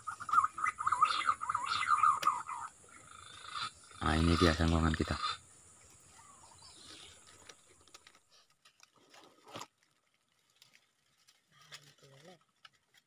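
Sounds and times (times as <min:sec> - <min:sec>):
soft clicks and chirps: 0:00.0 - 0:03.4.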